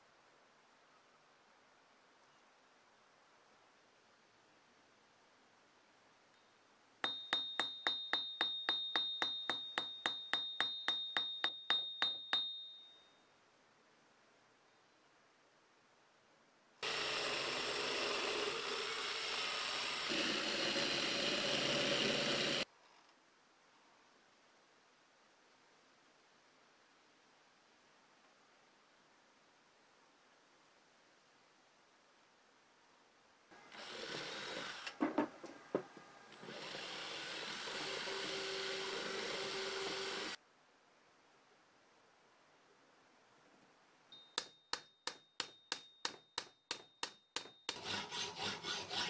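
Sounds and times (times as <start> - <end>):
drill spinning polishing wheel: 16.8 - 22.7, 36.4 - 40.4.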